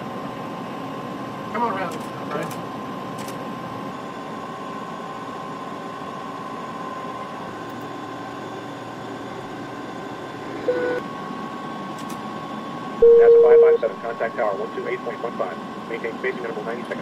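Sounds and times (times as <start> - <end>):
faint steady whine: 2.7 - 17.0
short steady tone: 13.0 - 13.9.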